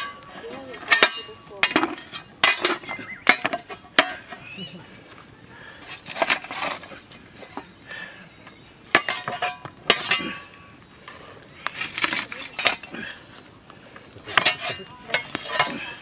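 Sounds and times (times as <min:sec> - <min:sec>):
shovel scraping hot stones: 0:00.0 - 0:08.0, 0:08.8 - 0:16.0
stones clinking and knocking: 0:11.6 - 0:13.0.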